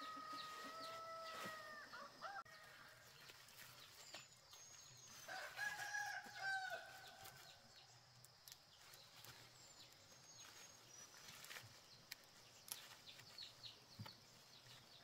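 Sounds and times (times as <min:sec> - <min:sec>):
rooster crowing: 0:00.0 - 0:02.7, 0:05.3 - 0:07.3.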